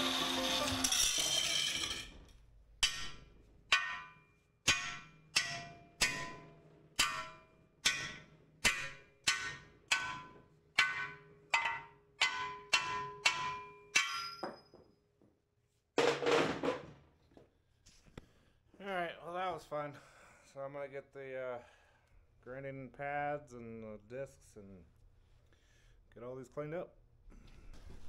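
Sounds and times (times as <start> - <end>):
hammer striking steel: 0.0 - 2.2, 2.8 - 14.7
metal clatter: 0.4 - 4.2.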